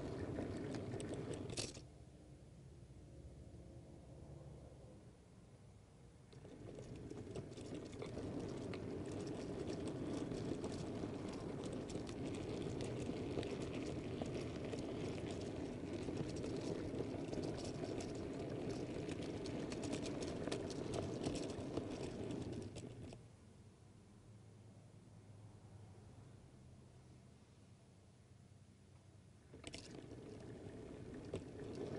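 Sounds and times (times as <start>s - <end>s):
model train wheels rumbling: 0.0s - 1.8s, 6.2s - 23.2s, 29.5s - 31.9s
clicks over rail joints: 6.3s - 23.2s.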